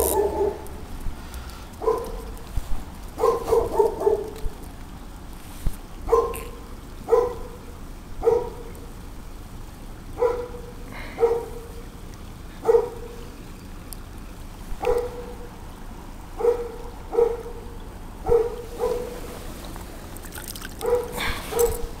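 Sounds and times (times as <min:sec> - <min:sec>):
dog barking: 0:00.0 - 0:00.6, 0:01.8 - 0:02.3, 0:03.2 - 0:04.4, 0:06.1 - 0:07.6, 0:08.2 - 0:08.7, 0:10.2 - 0:11.7, 0:12.6 - 0:13.2, 0:14.8 - 0:15.5, 0:16.4 - 0:19.2, 0:20.8 - 0:22.0
stream trickling over stones: 0:00.0 - 0:22.0.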